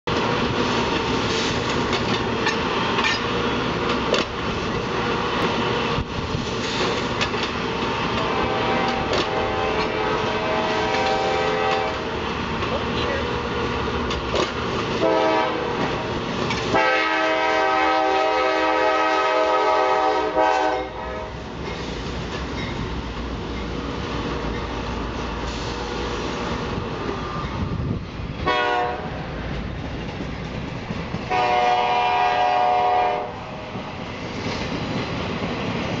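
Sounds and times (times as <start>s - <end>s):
freight train wheels clattering: 0.1s - 18.6s, 20.5s - 36.0s
locomotive air horn: 8.0s - 12.2s, 15.0s - 16.0s, 16.6s - 21.4s, 28.4s - 29.2s, 31.3s - 33.7s.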